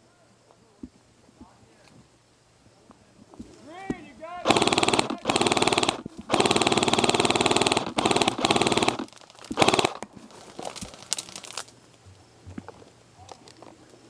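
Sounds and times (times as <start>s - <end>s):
rustling: 2.7s - 14.0s
airsoft rifle full-auto bursts: 4.4s - 10.0s.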